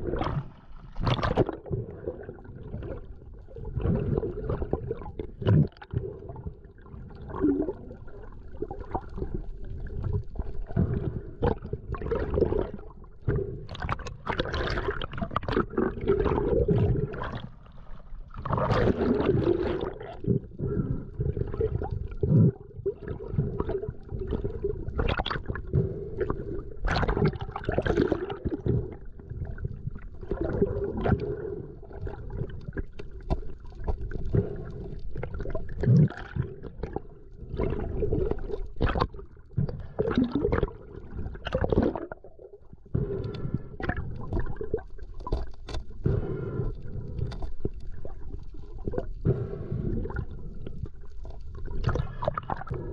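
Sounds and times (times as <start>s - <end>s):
water gurgling and sloshing: 0.0s - 52.9s.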